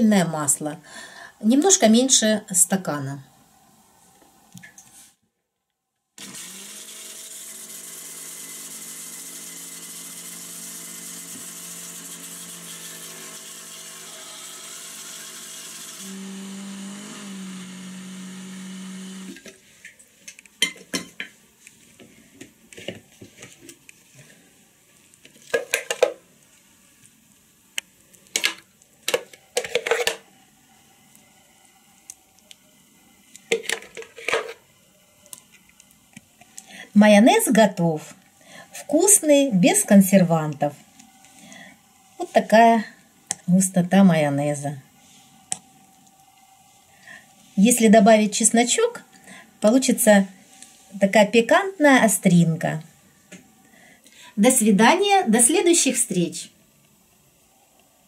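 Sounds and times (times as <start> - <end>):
blender motor running: 6.2 - 19.5.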